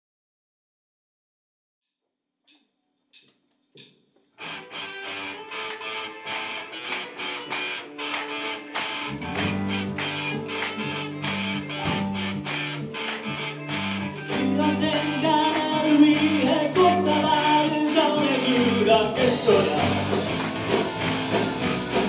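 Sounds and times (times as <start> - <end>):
drums: 3.8 - 22.0
bass guitar notes: 4.4 - 22.0
electric guitar: 4.4 - 22.0
keyboard: 5.0 - 22.0.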